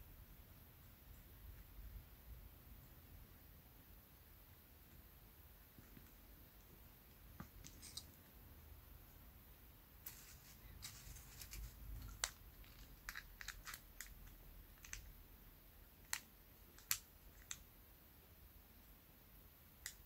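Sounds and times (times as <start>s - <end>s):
plastic parts clicking and tapping: 10.8s - 15.1s, 16.0s - 17.6s.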